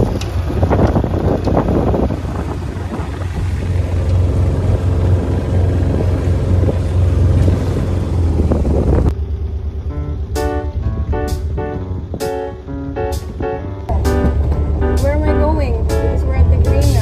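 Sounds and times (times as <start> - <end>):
wind buffeting microphone: 0.0 - 9.2
boat engine rumbling: 0.0 - 17.0.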